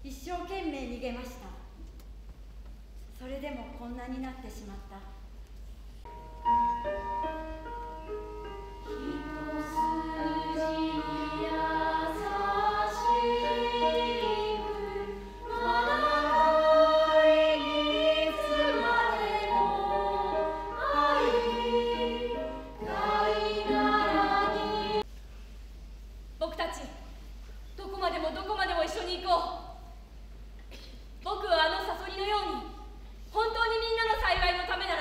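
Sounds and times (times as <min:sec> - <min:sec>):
chorus singing held notes: 0:08.5 - 0:25.1.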